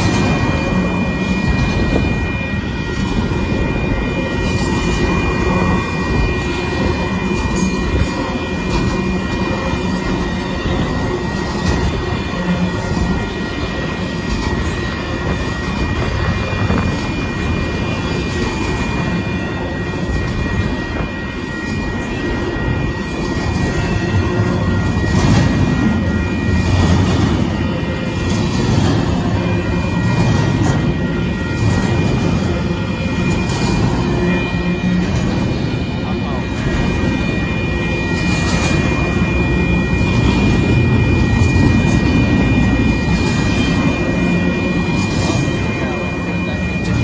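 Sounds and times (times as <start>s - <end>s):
train wheels rumbling on rails: 0.0s - 47.0s.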